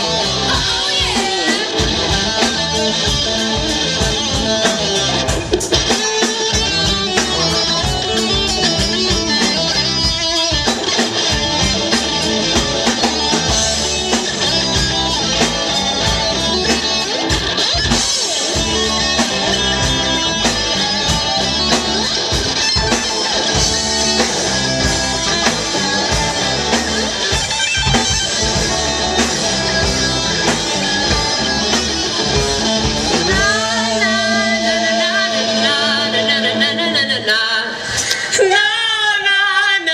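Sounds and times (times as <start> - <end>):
drum kit beats: 0.0 - 36.7
distorted electric guitars: 0.0 - 39.9
woman singing: 0.4 - 1.9, 33.3 - 39.9.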